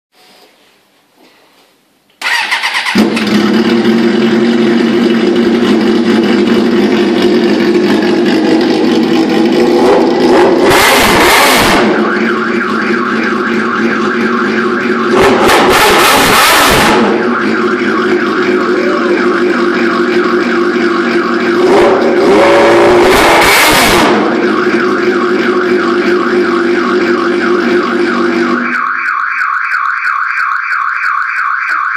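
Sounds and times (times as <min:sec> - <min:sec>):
motorcycle electric starter: 0:02.2 - 0:04.0
engine throttle blips: 0:02.2 - 0:31.9
motorcycle engine idling: 0:02.8 - 0:10.2.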